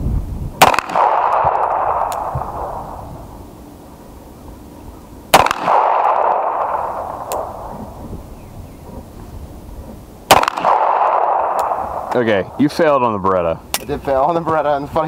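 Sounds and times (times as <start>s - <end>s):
pistol shots: 0.6s - 3.2s, 5.3s - 8.0s, 10.3s - 12.5s.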